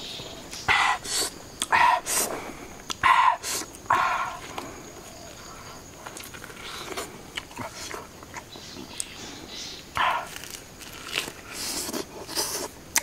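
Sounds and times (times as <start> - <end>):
person chewing food: 5.9 - 9.2, 9.9 - 13.0.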